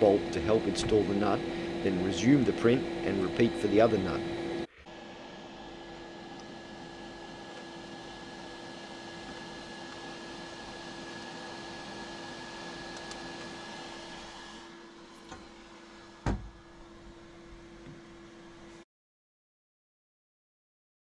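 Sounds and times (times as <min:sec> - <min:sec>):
printer fans humming: 0:00.0 - 0:18.8
glass door shutting thump: 0:16.2 - 0:16.6.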